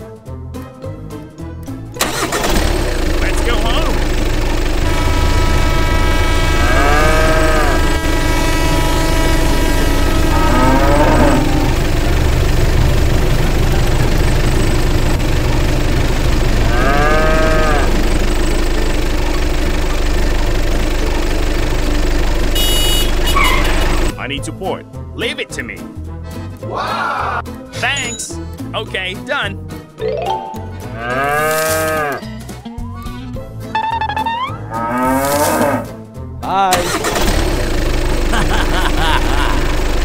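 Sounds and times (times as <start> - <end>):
tractor engine running: 1.7 - 24.1, 36.7 - 40.0
cow mooing: 6.0 - 12.0, 16.6 - 18.0, 30.9 - 32.3, 34.6 - 35.9.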